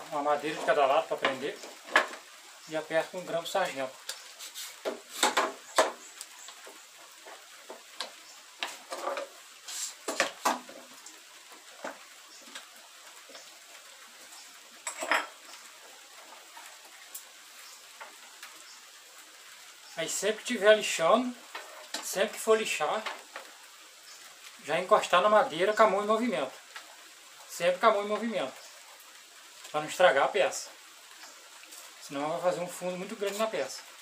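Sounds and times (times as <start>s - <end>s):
wooden boards handled on workbench: 4.8s - 6.0s.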